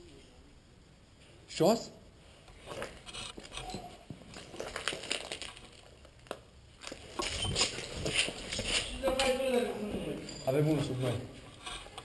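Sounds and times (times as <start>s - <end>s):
footsteps: 6.3s - 12.0s.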